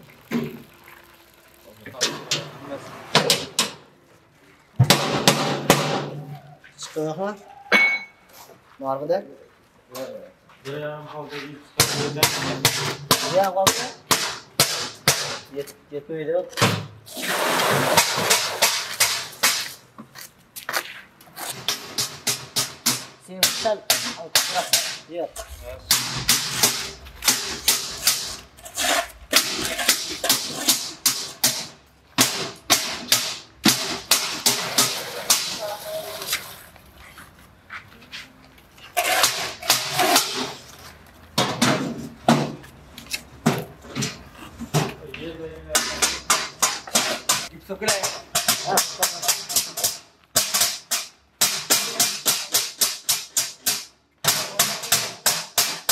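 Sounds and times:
sharp knocks: 4.8s - 6.2s, 21.6s - 28.5s
scraper scraping wet concrete: 17.1s - 19.8s, 24.5s - 31.0s, 34.4s - 36.8s, 38.8s - 41.0s.

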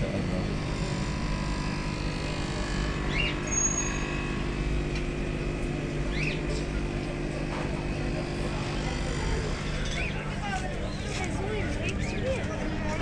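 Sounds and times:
steady low motor hum: 0.0s - 13.0s.

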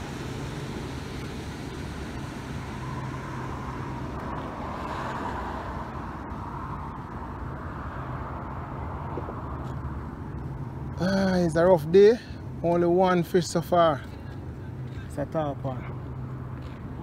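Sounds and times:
motor rumble: 0.0s - 10.9s.

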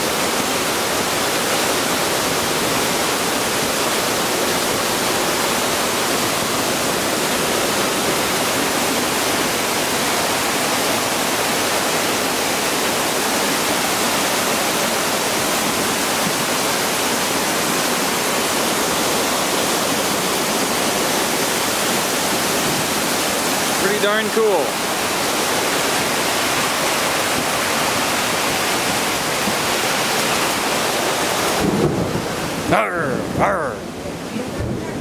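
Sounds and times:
heavy rain downpour: 0.0s - 35.0s
muddy water rushing: 0.0s - 35.0s.

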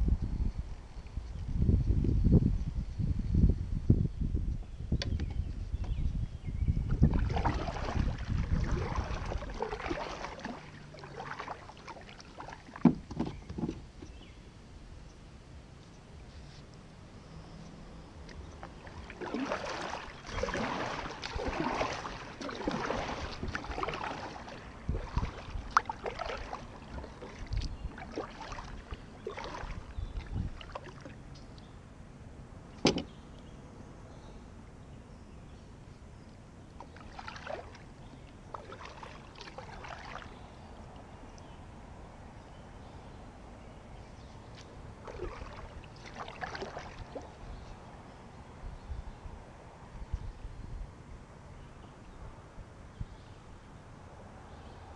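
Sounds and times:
paddle strokes splashing: 6.9s - 14.2s, 18.2s - 31.4s, 36.8s - 41.4s, 44.3s - 48.0s
paddle knocking: 7.1s - 14.2s, 18.6s - 31.1s.

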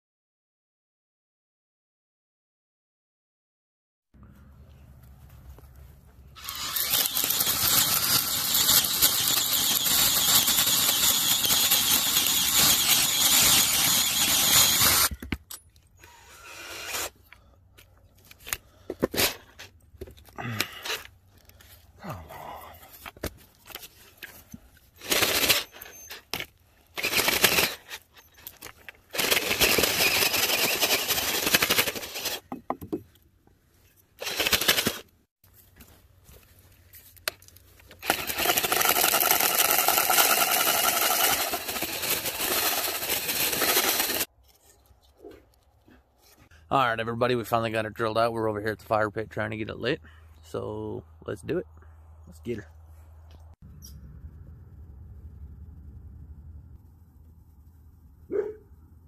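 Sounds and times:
cordless drill boring into log: 6.4s - 15.2s, 16.0s - 17.2s, 25.0s - 26.4s, 27.0s - 32.6s, 34.2s - 35.0s, 38.0s - 44.3s.

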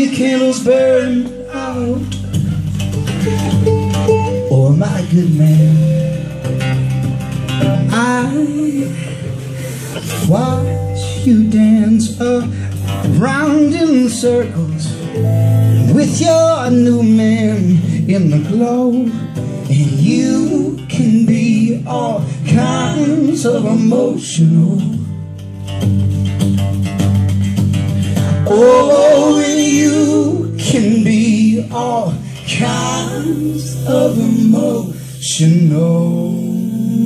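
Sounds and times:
acoustic guitar: 0.0s - 37.0s
electric guitar: 0.0s - 37.0s
mandolin: 0.8s - 21.8s
person singing: 28.4s - 37.0s.

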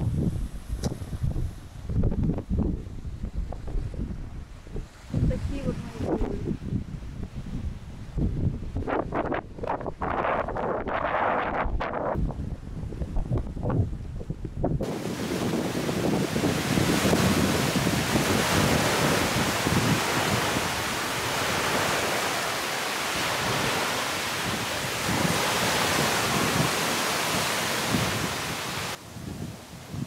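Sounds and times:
wind buffeting microphone: 0.0s - 30.0s
sea surf: 14.8s - 30.0s.

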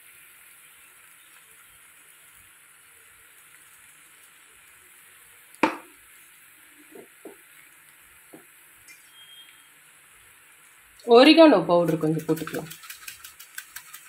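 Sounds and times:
spoon knocking against pan: 5.6s - 5.9s.

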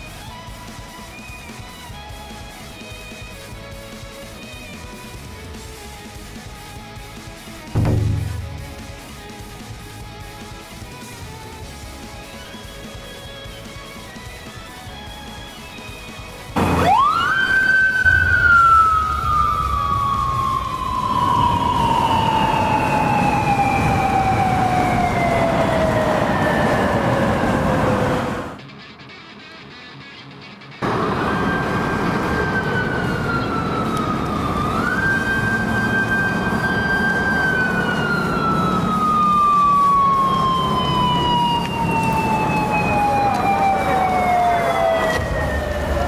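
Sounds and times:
engine and road rumble: 0.0s - 28.7s, 30.8s - 46.0s
police siren wailing down in pitch: 16.5s - 28.6s, 30.8s - 46.0s.

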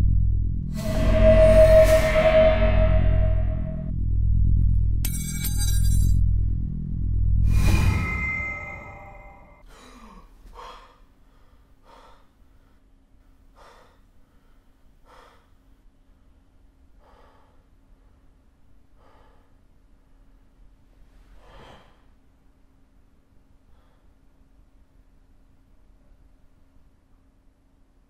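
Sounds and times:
faint steady hum: 9.0s - 28.0s
man gasping: 9.6s - 12.8s.

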